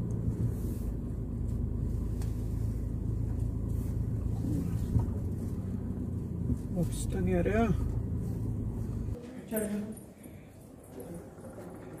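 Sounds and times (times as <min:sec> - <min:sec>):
car engine low hum: 0:00.0 - 0:09.2.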